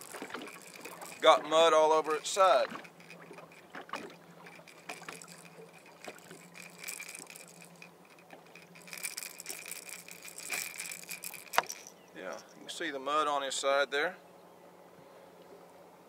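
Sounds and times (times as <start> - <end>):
small clinks and rattles: 0.0 - 12.8
steady low hum: 0.0 - 13.2.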